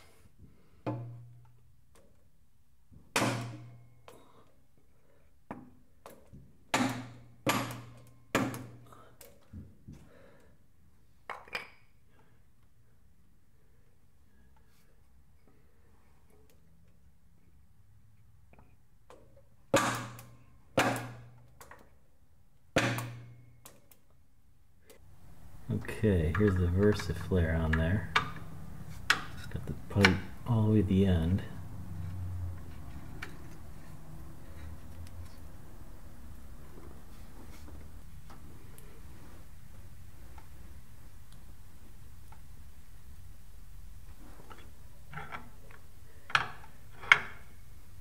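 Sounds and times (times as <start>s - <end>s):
sharp metal knocks: 3.1s - 3.8s, 6.7s - 8.8s, 19.7s - 21.4s, 22.7s - 23.4s.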